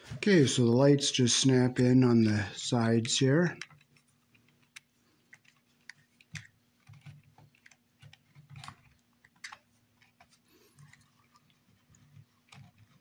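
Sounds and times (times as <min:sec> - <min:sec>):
hands clicking plastic housing: 0:03.6 - 0:10.2.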